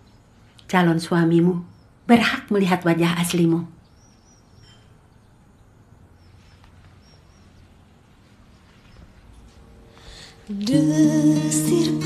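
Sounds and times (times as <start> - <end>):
faint high chirps: 3.9 - 7.6
soft hiss: 6.0 - 12.0
low hum: 7.3 - 12.0.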